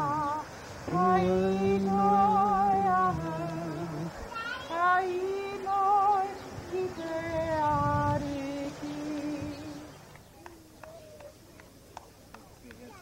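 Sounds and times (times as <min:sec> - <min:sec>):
woman singing long notes: 0:00.0 - 0:10.0.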